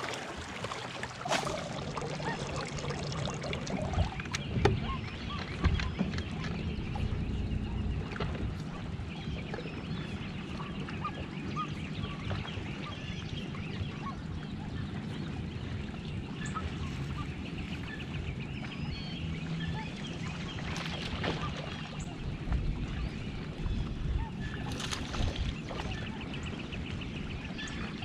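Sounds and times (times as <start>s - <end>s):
steady low rumble: 1.0s - 12.3s.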